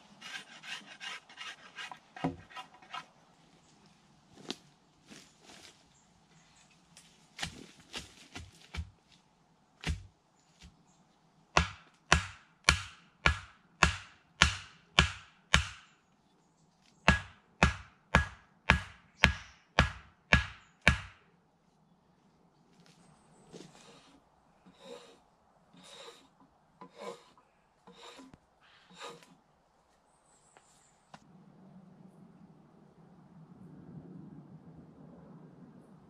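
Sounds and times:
blade scraping wooden pole: 0.0s - 3.2s, 23.5s - 29.4s
hatchet chopping wood: 9.8s - 10.1s, 11.6s - 15.9s, 17.1s - 21.2s.

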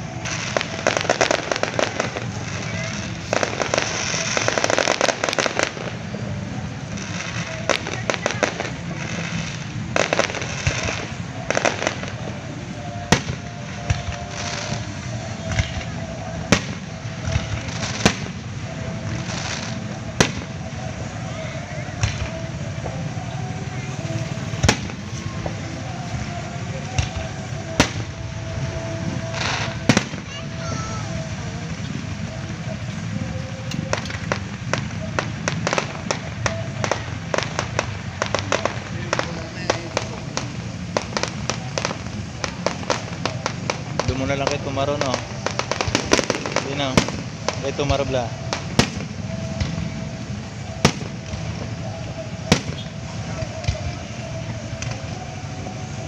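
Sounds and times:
fireworks bursting with sharp bangs: 0.0s - 56.0s
steady background noise: 0.0s - 56.0s.

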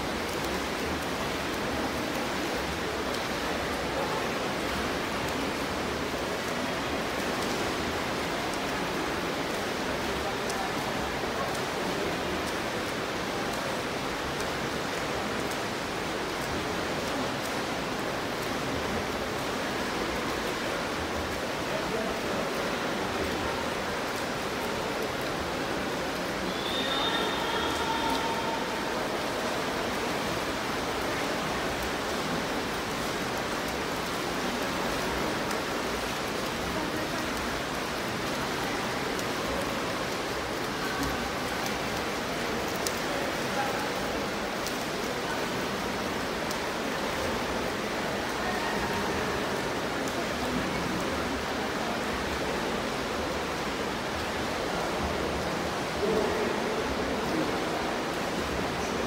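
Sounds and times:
swimming pool hall rushing noise: 0.0s - 59.0s.

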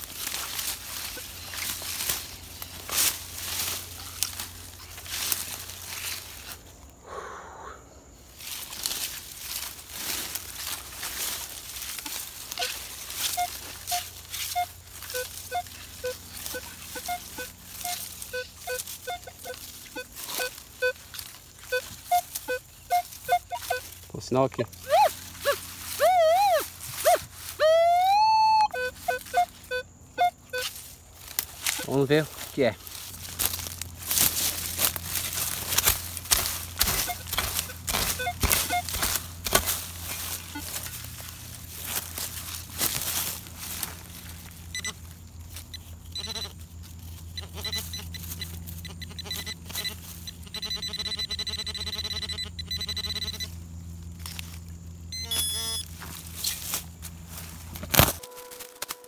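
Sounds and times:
detector coil rustling: 0.0s - 6.6s, 8.4s - 27.6s, 28.7s - 59.0s
feet brushing through leaves: 0.0s - 6.8s, 8.3s - 50.6s, 53.2s - 59.0s
hand scraping leaf litter and soil: 0.0s - 6.8s, 8.4s - 27.7s, 28.8s - 50.6s, 55.9s - 59.0s
metal detector beeps: 12.0s - 24.0s, 24.8s - 30.8s, 31.6s - 32.3s, 36.3s - 41.0s, 44.7s - 46.6s, 47.3s - 53.6s, 55.1s - 56.6s, 58.0s - 59.0s.

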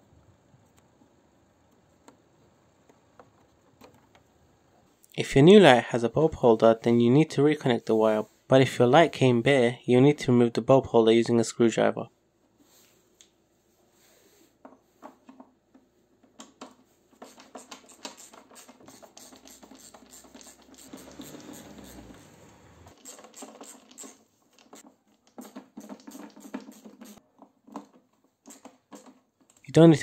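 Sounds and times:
screwdriver clicks and scratches: 17.2s - 22.2s, 22.9s - 27.2s.

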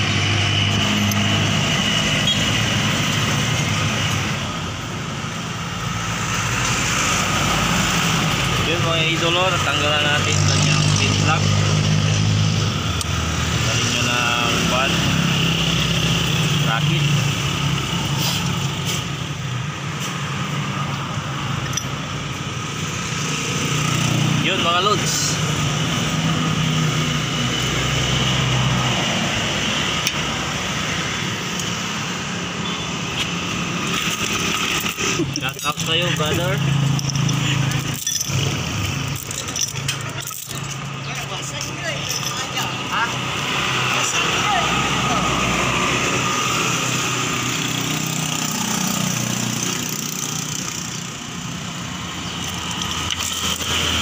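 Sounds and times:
metallic chain clinks: 21.6s - 22.4s, 33.9s - 42.8s.

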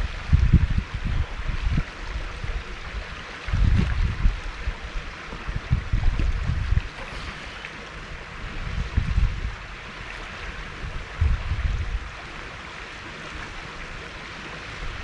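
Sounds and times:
wind buffeting microphone: 0.0s - 12.4s
river water over stones: 0.0s - 15.0s.

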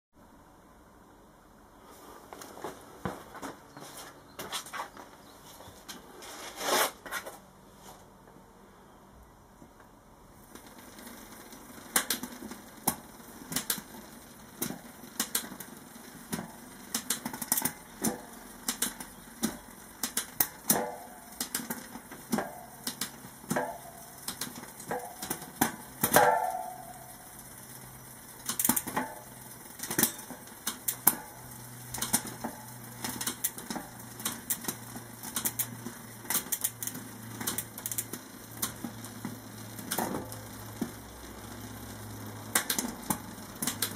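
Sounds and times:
bicycle chain clicking: 10.5s - 43.9s.

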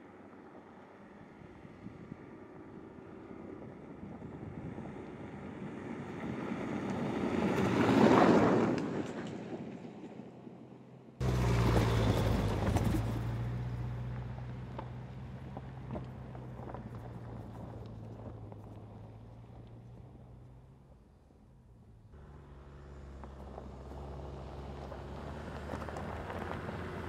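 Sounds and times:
stones under tyres: 11.2s - 20.1s, 22.2s - 27.0s
vehicle driving past: 11.2s - 20.9s, 22.2s - 27.0s.

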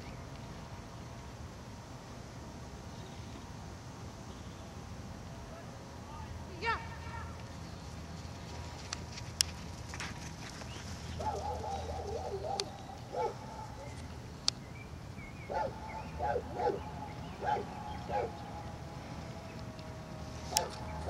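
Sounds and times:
dog barking: 11.2s - 13.9s, 15.5s - 18.4s, 20.5s - 20.8s.

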